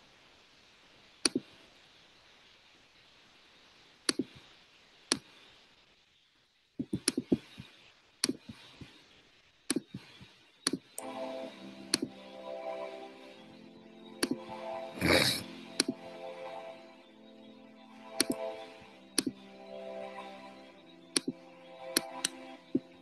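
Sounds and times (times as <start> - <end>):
computer mouse clicks: 1.2 - 1.5, 4.1 - 4.4, 6.8 - 9.0, 9.7 - 11.1, 18.2 - 18.4, 21.2 - 21.4
music playing: 11.0 - 23.0.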